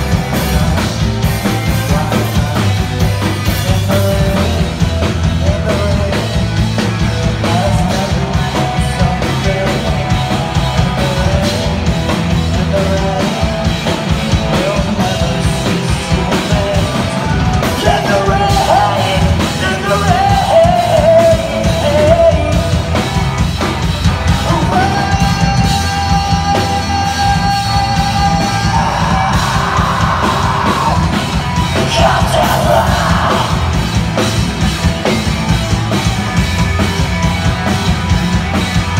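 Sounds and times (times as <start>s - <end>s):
rock band playing: 0.0s - 38.9s
person yelling vocals: 24.4s - 33.9s.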